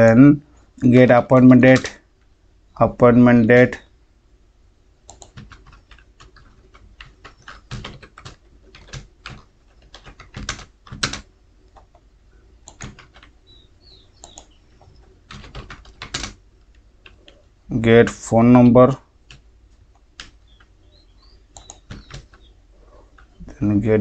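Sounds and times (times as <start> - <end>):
typing on computer keyboard: 5.1 - 12.0, 12.6 - 13.4, 14.2 - 16.4, 20.0 - 20.7, 21.5 - 22.5.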